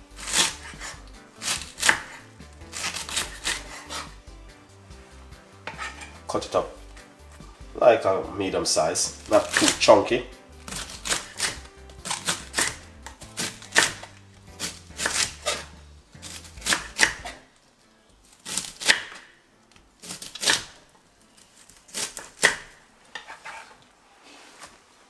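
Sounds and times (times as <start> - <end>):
knife chopping on wooden board: 0.2 - 4.2, 5.6 - 6.2, 9.1 - 10.0, 10.6 - 17.4, 18.4 - 19.3, 21.9 - 23.5.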